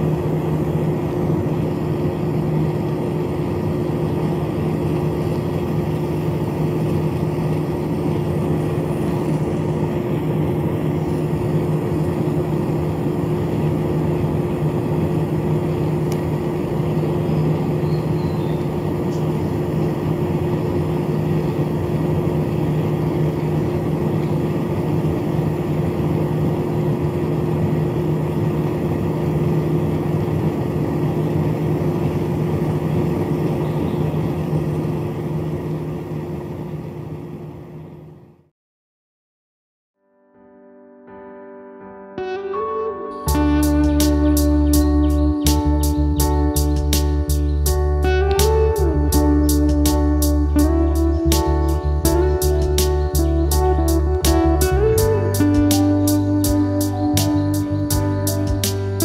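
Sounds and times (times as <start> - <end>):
small fan motors humming: 0.0 - 38.4, 43.3 - 59.0.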